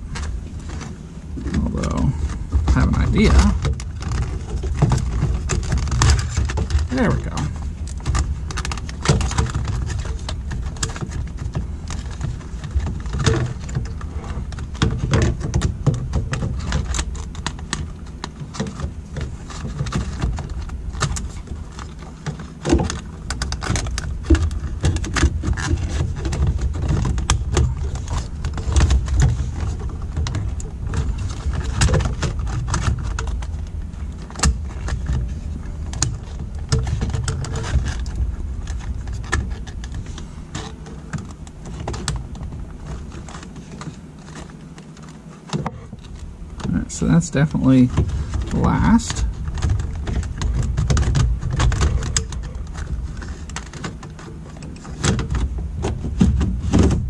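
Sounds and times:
plastic console scraping and rattling: 0.0s - 57.0s
small clicks and knocks: 0.1s - 47.1s, 47.7s - 57.0s.

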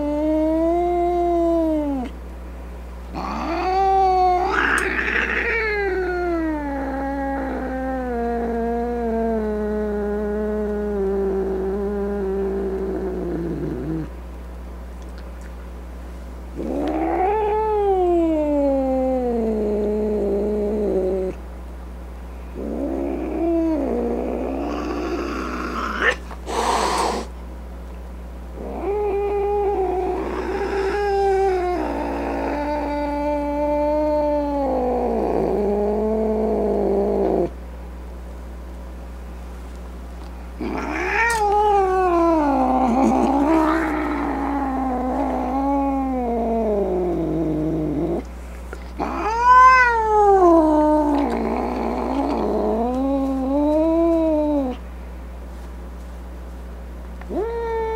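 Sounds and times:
cat yowling: 3.2s - 9.2s, 16.6s - 19.4s, 22.6s - 27.3s, 28.6s - 35.2s, 40.6s - 47.1s, 49.0s - 54.8s, 57.3s - 57.9s.

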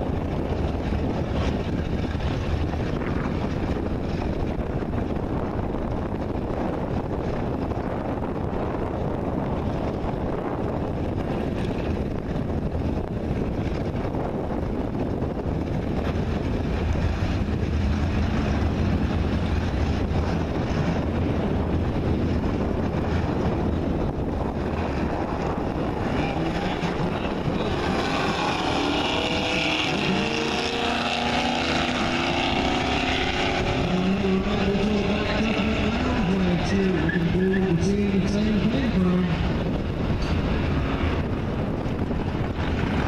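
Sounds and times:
engines rumbling: 0.0s - 43.0s
engines accelerating: 8.9s - 43.0s.

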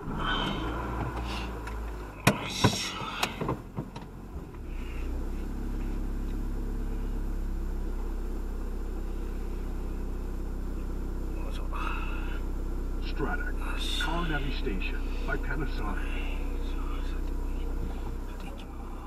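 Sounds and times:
car engine humming: 0.0s - 19.0s
sharp clicks and knocks: 1.0s - 4.6s.

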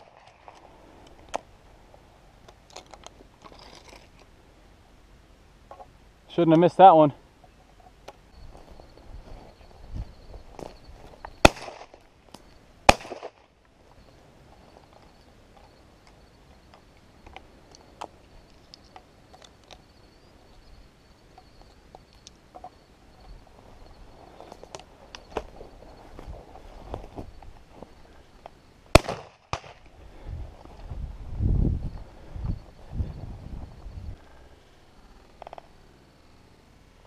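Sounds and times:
shotgun shots: 11.4s - 12.0s, 12.9s - 13.5s, 28.9s - 29.8s.

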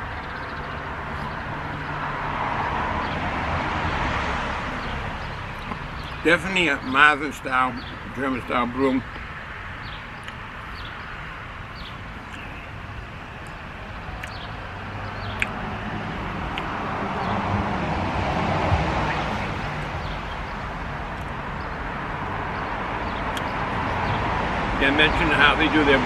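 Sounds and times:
car passing by: 0.9s - 7.6s, 14.2s - 26.0s
bird chirps: 4.8s - 15.6s, 19.0s - 21.8s.

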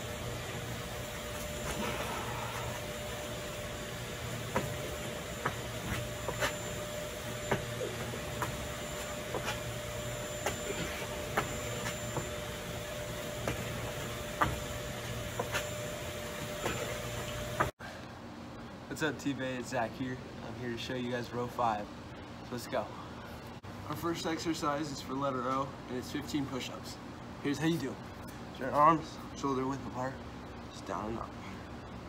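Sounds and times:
low hum: 0.0s - 18.7s
hands and feet slapping pavers: 4.4s - 9.8s, 10.4s - 12.5s, 13.2s - 17.7s.

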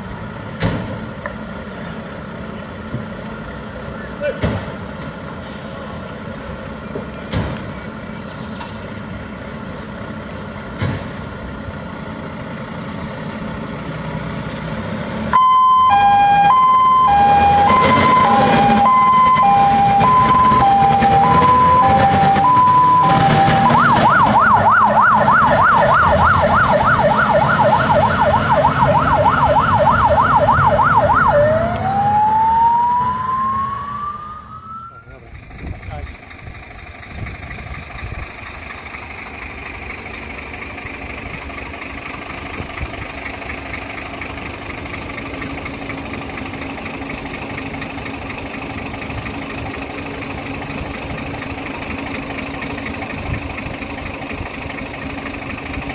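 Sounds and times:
fire engine diesel running: 0.0s - 55.9s
fire engine siren: 15.3s - 35.2s.

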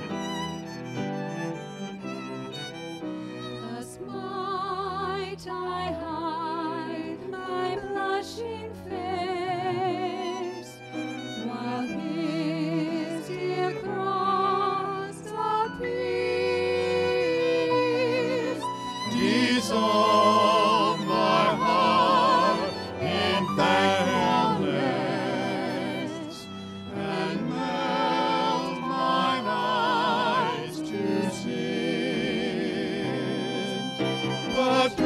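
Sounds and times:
violin melody with vibrato: 0.0s - 35.0s
cello playing low line: 15.8s - 35.0s.

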